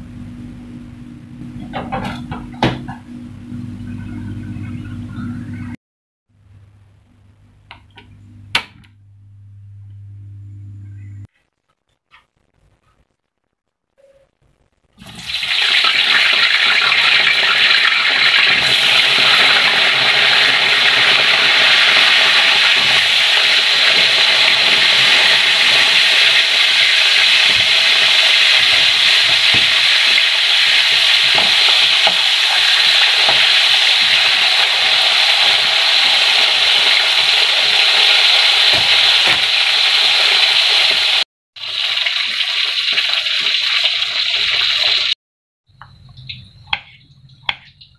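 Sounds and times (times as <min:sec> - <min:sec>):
eggplant sizzling in hot oil: 0:14.9 - 0:45.2.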